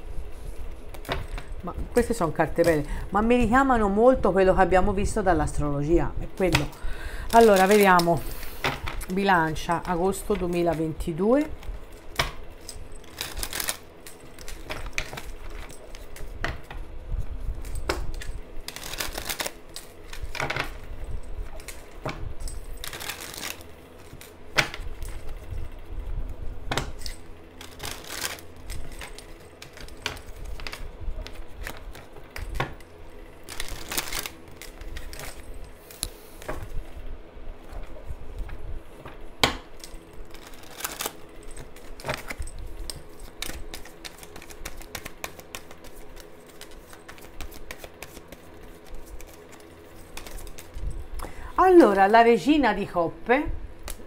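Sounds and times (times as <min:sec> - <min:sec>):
cards shuffling and clicking: 0:06.4 - 0:16.9, 0:17.5 - 0:25.5, 0:26.8 - 0:36.7, 0:37.7 - 0:50.9
card riffles rustling: 0:06.4 - 0:25.6, 0:27.0 - 0:36.8, 0:37.6 - 0:51.0.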